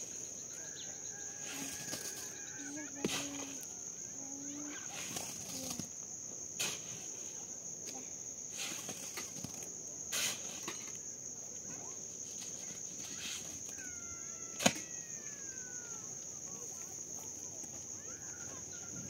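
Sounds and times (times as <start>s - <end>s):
insect trill: 0.0s - 19.0s.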